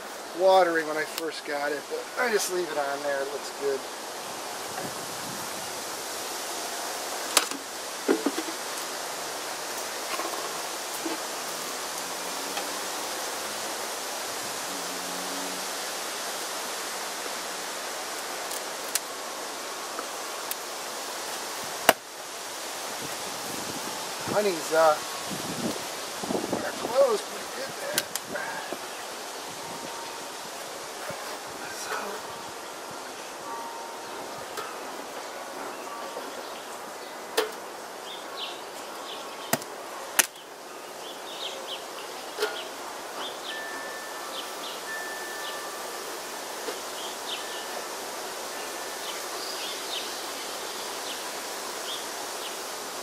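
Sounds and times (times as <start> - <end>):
bee smoker hissing: 0.0 - 33.6.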